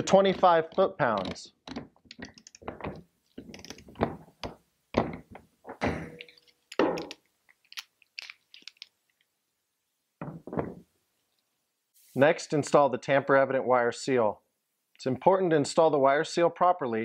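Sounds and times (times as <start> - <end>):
metal hand tools clicking and knocking: 0.0 - 8.9.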